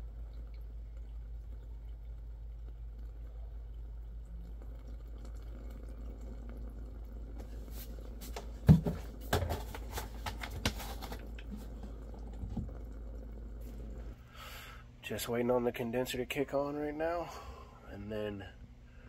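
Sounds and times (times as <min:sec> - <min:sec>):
low hum: 0:00.0 - 0:10.2, 0:10.9 - 0:19.0
water gurgling: 0:00.0 - 0:14.2.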